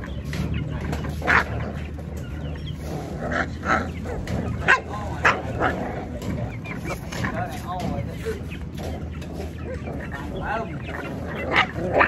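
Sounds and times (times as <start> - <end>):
steady low hum: 0.0 - 12.0
dog barking: 3.7 - 5.8.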